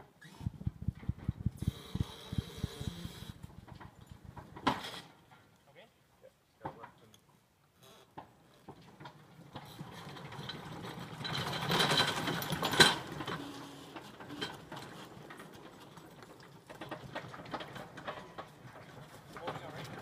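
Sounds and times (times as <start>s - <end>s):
boat lift rattling on planks: 8.7s - 20.0s.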